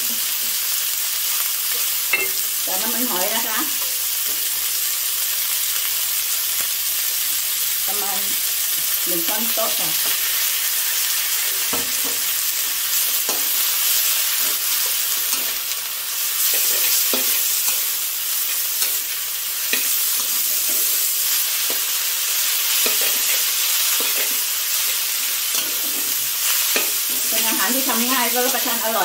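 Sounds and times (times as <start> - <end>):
food sizzling in a wok: 0.0 - 29.0
metal spatula scraping a wok: 13.2 - 27.8.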